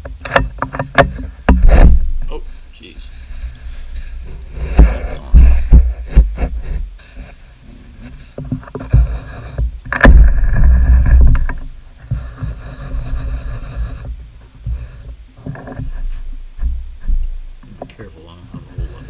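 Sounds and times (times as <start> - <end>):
scattered knocks: 0.0 - 2.4, 3.8 - 6.8.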